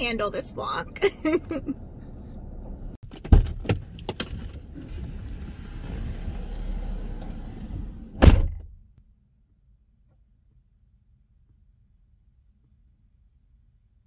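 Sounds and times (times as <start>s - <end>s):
car engine rumble: 0.0s - 9.0s
loud thump: 8.2s - 8.9s.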